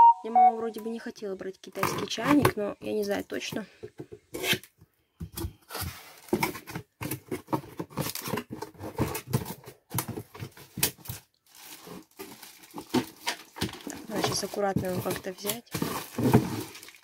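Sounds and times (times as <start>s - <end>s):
scrapes and small knocks: 1.8s - 17.0s
plastic bag rustling: 5.7s - 17.0s.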